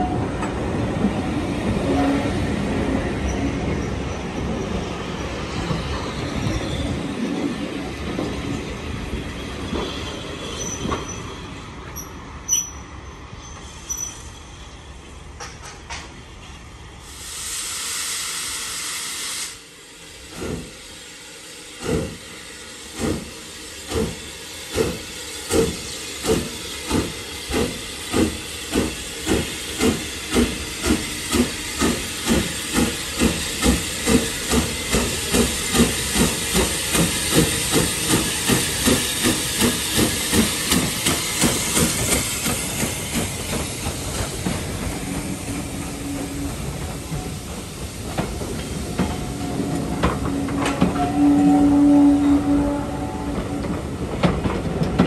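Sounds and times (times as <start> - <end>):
railway coaches running: 0.0 - 55.0
steam hissing: 16.9 - 52.8
steam locomotive exhaust chuffs: 17.0 - 55.0.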